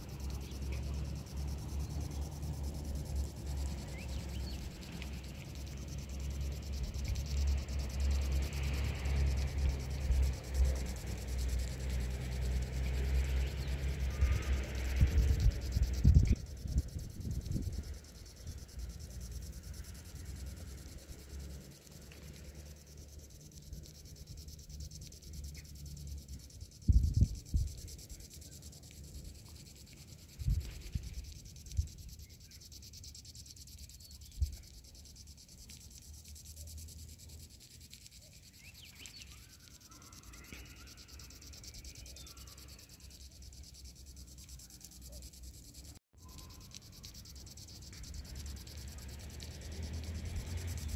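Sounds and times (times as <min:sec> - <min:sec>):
wind rumbling on microphone: 0:12.0 - 0:18.8, 0:26.1 - 0:28.2, 0:30.2 - 0:32.1.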